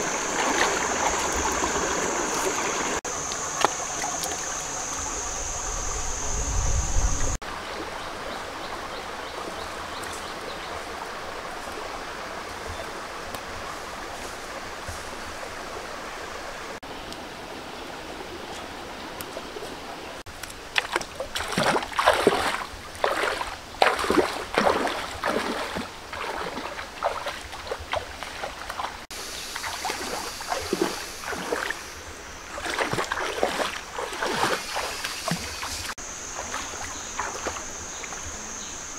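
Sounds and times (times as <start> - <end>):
bare feet splashing in water: 0.0 - 4.6, 19.2 - 31.9, 32.5 - 38.2
stream running over rocks: 0.0 - 6.4, 7.2 - 38.9.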